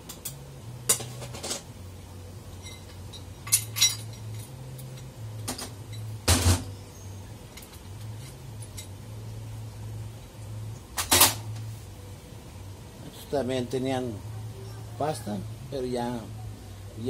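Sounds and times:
metal parts clinking on workbench: 2.6s - 6.1s.

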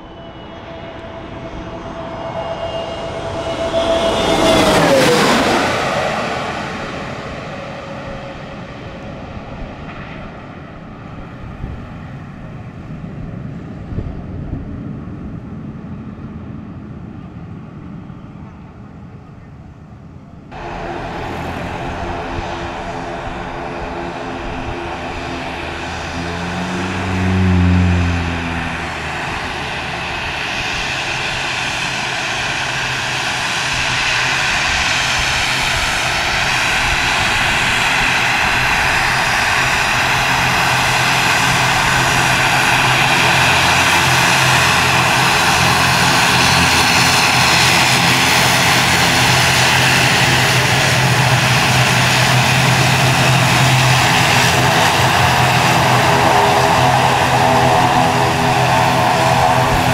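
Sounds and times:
airliner engines running: 0.0s - 59.9s
low humming: 20.5s - 30.9s.

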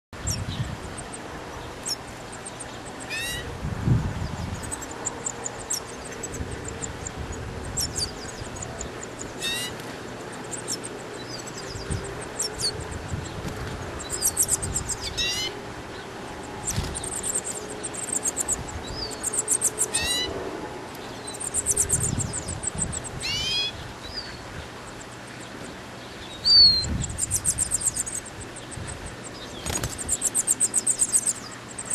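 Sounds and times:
nestlings cheeping: 4.2s - 20.3s, 20.9s - 24.2s, 26.2s - 31.9s.

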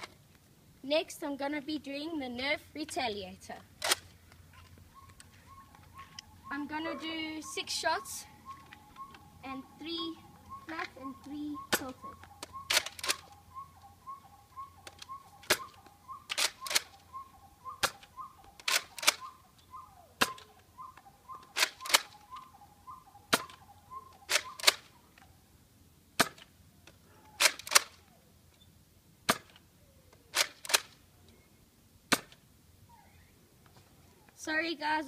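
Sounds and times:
spring-powered dart shots: 17.8s - 19.2s, 20.2s - 20.5s, 23.3s - 23.6s, 26.2s - 26.5s, 29.3s - 29.6s, 32.1s - 32.4s.

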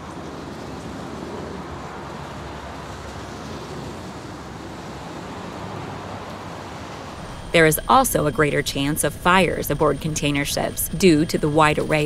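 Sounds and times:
rushing wind-like noise: 0.0s - 12.0s
low rumble: 7.1s - 12.0s.

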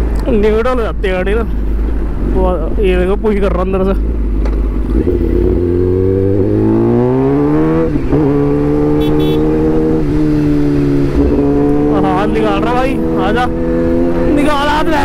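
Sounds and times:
motorcycle engine accelerating: 4.0s - 15.0s.

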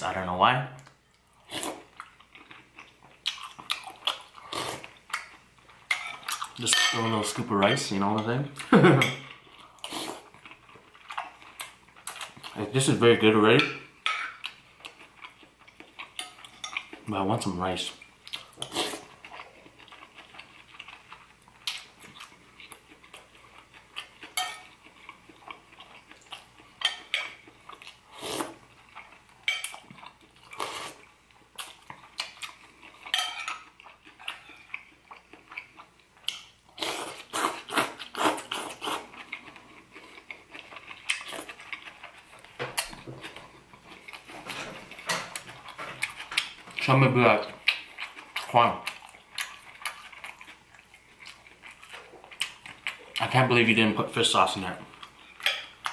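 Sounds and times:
chewing: 0.8s - 6.6s, 9.2s - 12.7s, 18.0s - 53.4s.

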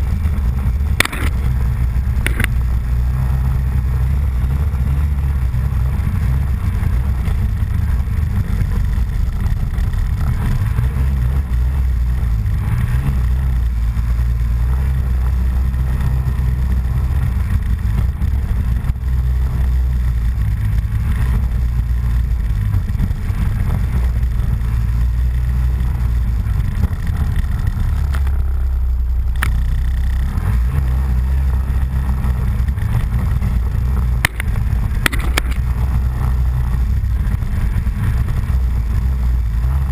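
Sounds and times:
off-road vehicle engine droning: 0.0s - 39.9s
sharp clicks: 0.9s - 1.5s, 2.2s - 2.6s, 29.3s - 30.1s, 34.2s - 35.7s.

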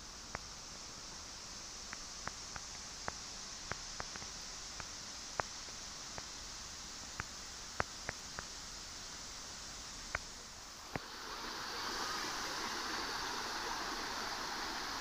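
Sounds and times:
high-pitched outdoor hiss: 0.0s - 15.0s.

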